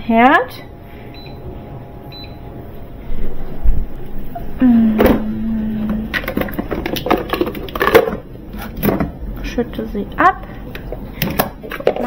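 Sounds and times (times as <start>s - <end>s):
low hum: 0.0s - 12.0s
plastic bowls clattering: 5.0s - 9.2s, 10.7s - 12.0s.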